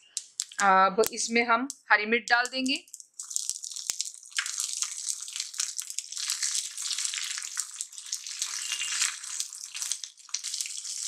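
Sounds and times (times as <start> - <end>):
chillies sizzling in oil: 0.0 - 11.0
seeds crackling and spluttering: 0.0 - 11.0.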